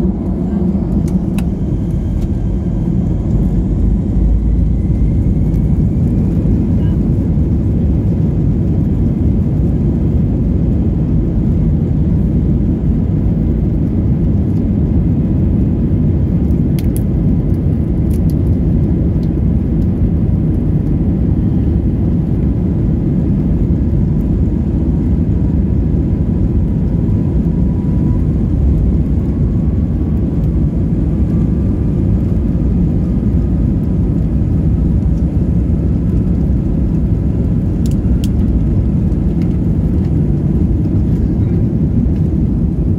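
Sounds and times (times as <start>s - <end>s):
faint rising whine: 0.0s - 8.0s
airplane cabin engine roar: 0.0s - 42.9s.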